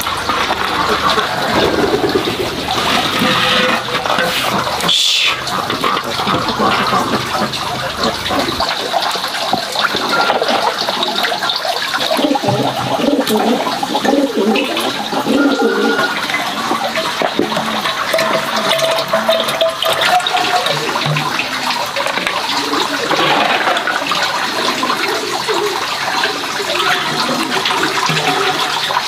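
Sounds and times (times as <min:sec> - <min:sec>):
liquid lard pouring into glass jar: 0:00.0 - 0:26.8.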